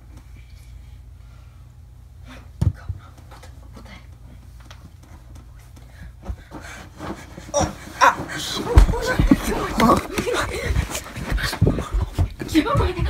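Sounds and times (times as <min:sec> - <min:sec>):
low steady hum: 0:00.0 - 0:13.0
bedding rustling: 0:04.9 - 0:13.0.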